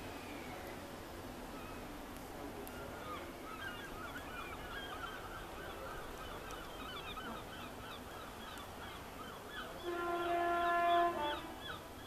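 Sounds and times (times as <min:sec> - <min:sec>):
birds chirping and twittering: 0:02.7 - 0:12.0.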